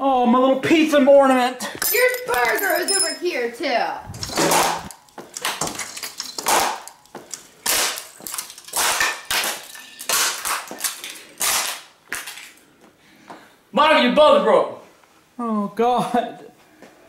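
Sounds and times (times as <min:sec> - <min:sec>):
ornaments smashing on tile floor: 0:01.6 - 0:03.2, 0:04.1 - 0:12.6.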